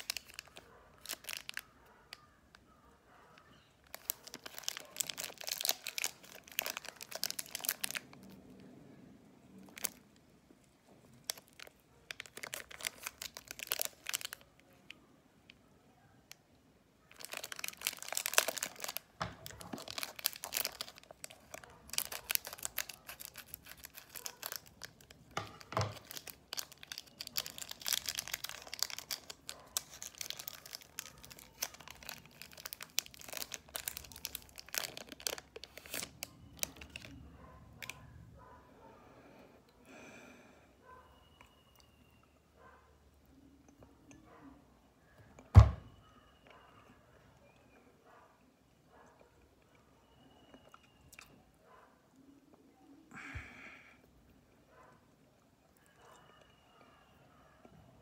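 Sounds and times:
plastic wrapper crinkling: 0.0s - 2.7s, 3.4s - 8.4s, 9.6s - 14.9s, 17.1s - 37.2s.

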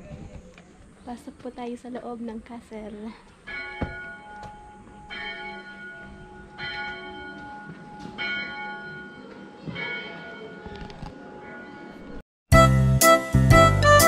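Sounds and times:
bells ringing: 3.5s - 12.2s.

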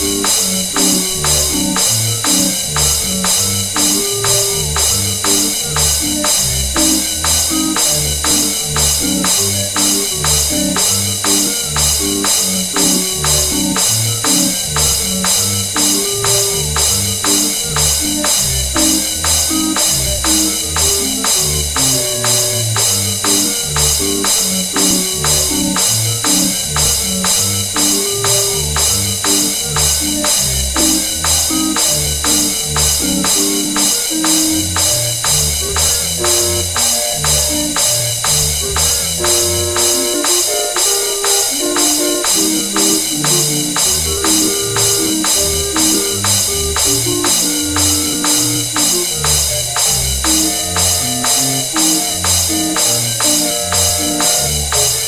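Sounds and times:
instrumental music with drums: 0.0s - 55.0s.

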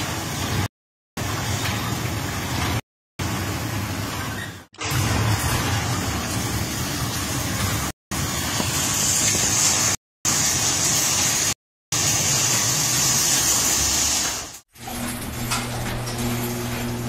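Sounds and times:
garage door opener running: 1.2s - 8.4s, 12.0s - 17.0s
door rolling along tracks: 12.6s - 17.0s.

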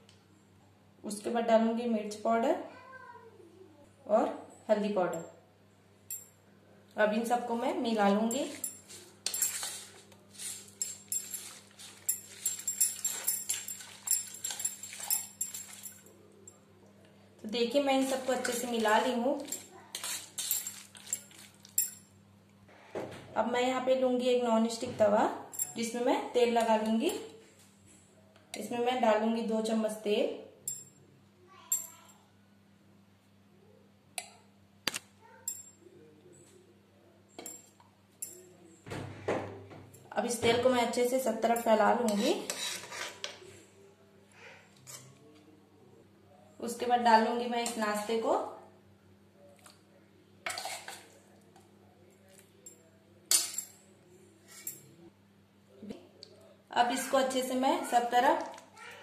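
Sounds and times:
spoon scraping steel bowl: 8.2s - 16.0s, 18.0s - 21.9s, 42.1s - 43.3s, 50.5s - 51.1s.

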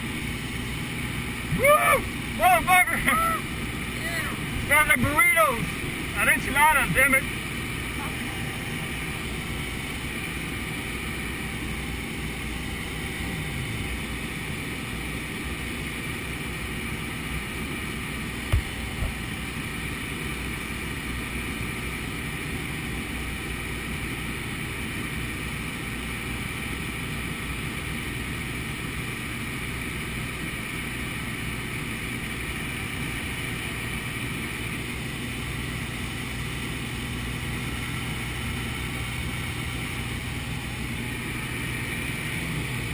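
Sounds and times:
plane engine and propeller drone: 0.0s - 42.9s.

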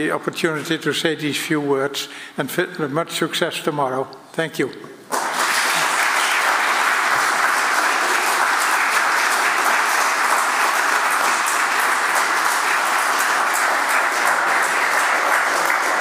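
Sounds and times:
audience applauding: 5.1s - 16.0s.

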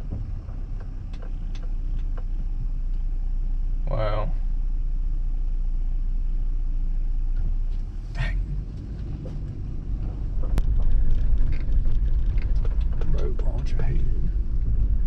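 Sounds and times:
car driving rumble inside cab: 0.0s - 15.0s
light clicks and rattles: 8.7s - 15.0s.

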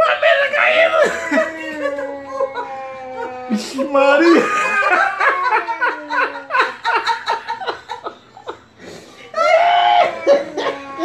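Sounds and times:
person laughing: 1.0s - 8.6s.

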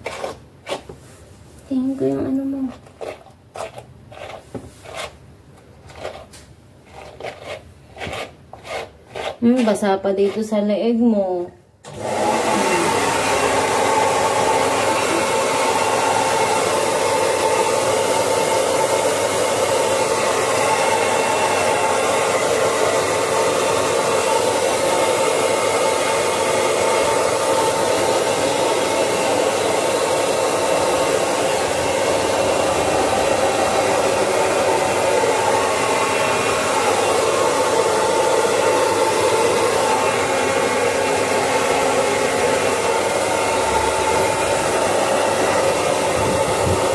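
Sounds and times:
hair dryer running: 11.8s - 46.9s.

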